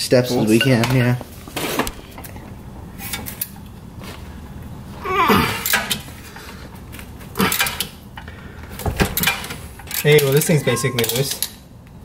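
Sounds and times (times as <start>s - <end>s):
hand tools clinking on metal: 9.9s - 11.5s.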